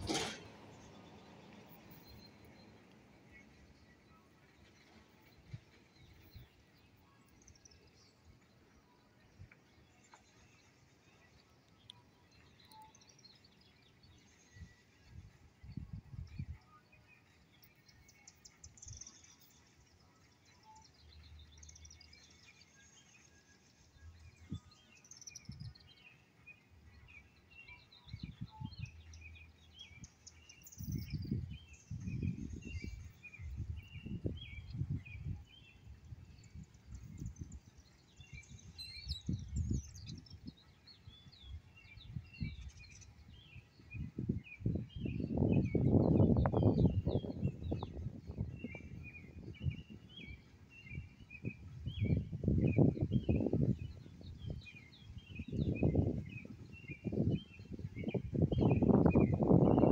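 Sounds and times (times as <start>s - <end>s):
songbirds chirping and singing: 0.0s - 59.9s
low rumbling on microphone: 41.4s - 59.9s.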